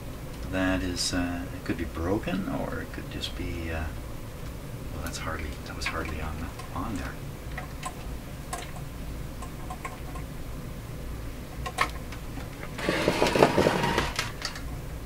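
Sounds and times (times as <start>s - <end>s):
clicks and taps on metal knobs: 5.0s - 10.3s
rough scraping rattle: 12.8s - 14.3s.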